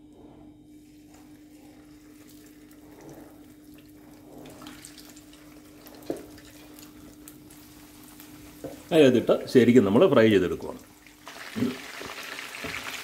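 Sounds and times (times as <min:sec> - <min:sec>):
low hum: 0:00.0 - 0:08.8
chicken sizzling in hot oil: 0:04.5 - 0:09.4, 0:10.6 - 0:13.0.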